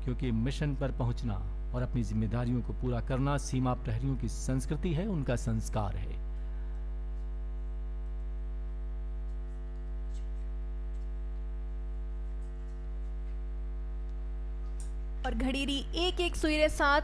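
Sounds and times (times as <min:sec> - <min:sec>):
steady electrical hum: 0:00.0 - 0:17.0.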